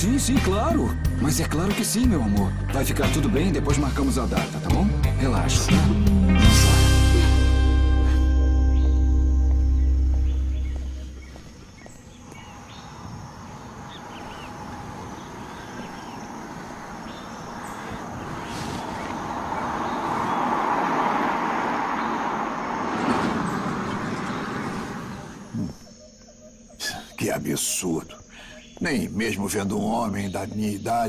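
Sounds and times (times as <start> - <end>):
car passing on road: 6.4 - 25.6
faint bird chirps: 8.7 - 20.5, 24.1 - 31.0.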